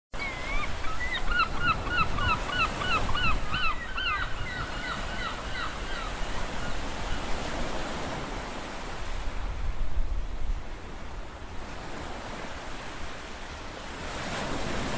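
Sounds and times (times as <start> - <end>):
wind: 0.1 - 14.9
bird calling: 0.2 - 7.3.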